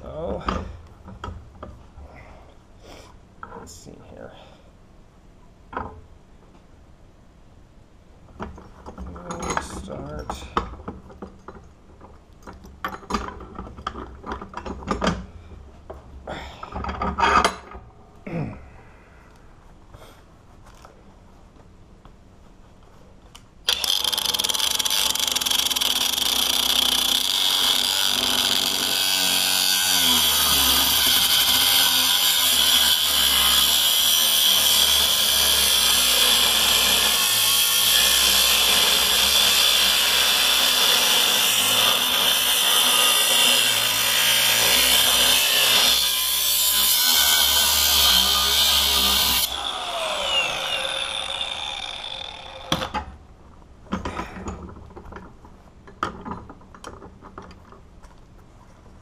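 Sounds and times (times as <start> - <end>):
grinder wheel spinning down: 23.7 - 33.8, 47.1 - 52.9
angle grinder whining: 23.7 - 53.0.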